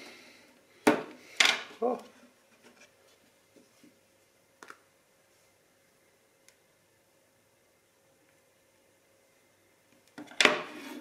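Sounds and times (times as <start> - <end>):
phone scraping on table: 10.5 - 11.0.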